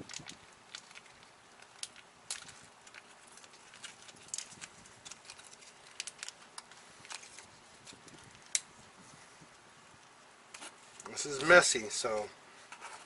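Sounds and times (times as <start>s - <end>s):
foil packet crinkling: 0.0s - 8.7s.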